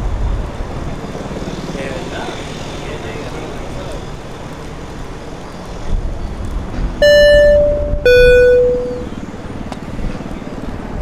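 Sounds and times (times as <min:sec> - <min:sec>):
low rumble: 0:06.6 - 0:09.4
loud beeps: 0:07.0 - 0:09.2.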